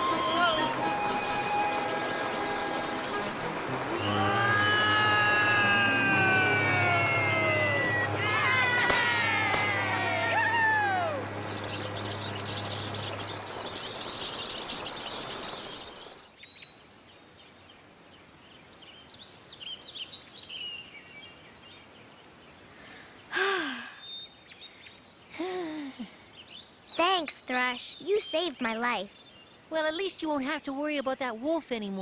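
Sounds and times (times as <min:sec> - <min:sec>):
small birds twittering: 0:04.9 - 0:25.4, 0:26.0 - 0:32.0
girl sighing: 0:23.3 - 0:24.0, 0:25.4 - 0:26.1.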